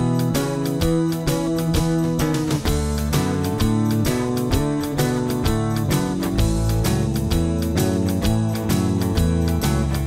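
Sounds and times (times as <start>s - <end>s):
strummed guitar music with beat: 0.0s - 10.0s.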